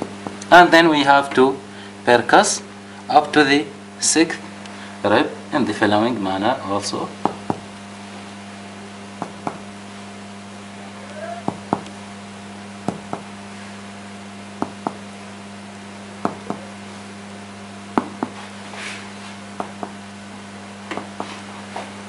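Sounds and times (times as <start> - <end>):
mains hum: 0.0 - 22.0
finger tapping on chest: 9.2 - 9.7, 11.4 - 12.0, 12.9 - 13.3, 14.6 - 15.0, 16.2 - 16.7, 18.0 - 18.4, 19.6 - 20.0.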